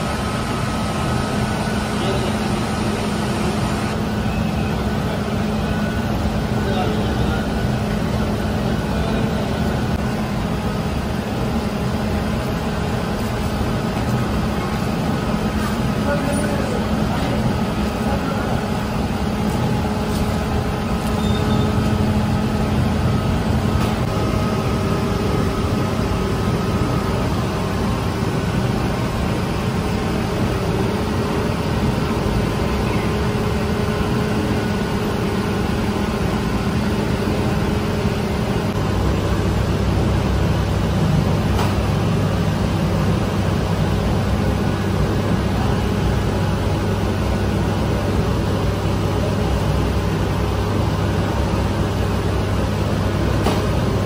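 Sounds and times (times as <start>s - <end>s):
low machine hum: 0.0s - 54.0s.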